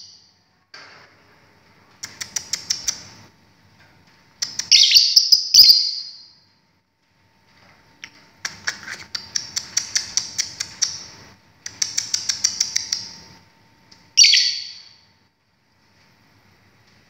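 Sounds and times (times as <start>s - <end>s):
bird chirping: 4.4s - 6.4s, 9.1s - 13.2s, 14.2s - 15.1s
bird squawking: 14.2s - 14.9s.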